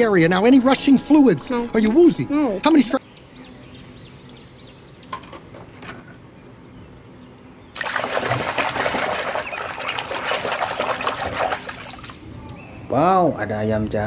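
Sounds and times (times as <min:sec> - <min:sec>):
toy splashing in water basin: 0:07.8 - 0:12.2.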